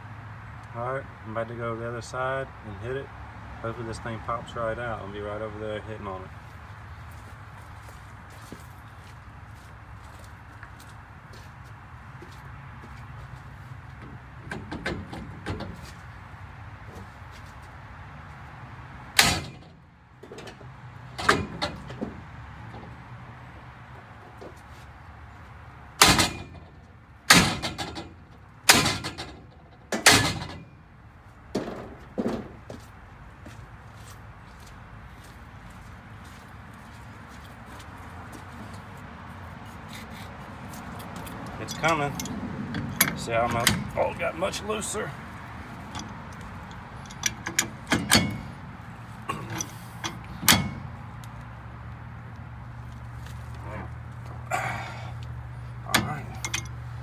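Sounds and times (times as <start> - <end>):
wrench clinking on metal: 55.9 - 56.8.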